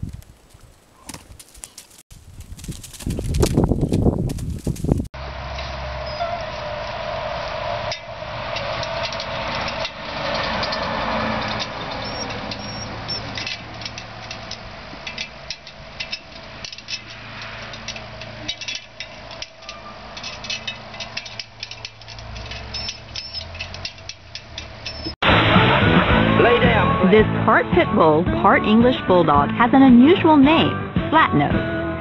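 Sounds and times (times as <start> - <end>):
dog claws clicking on metal ladder: 8.6 - 25.2.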